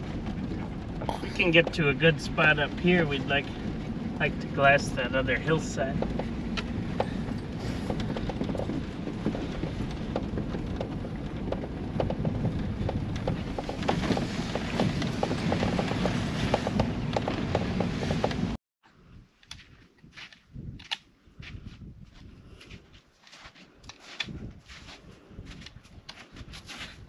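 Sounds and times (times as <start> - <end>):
engine and tyre rumble: 0.0 - 18.6.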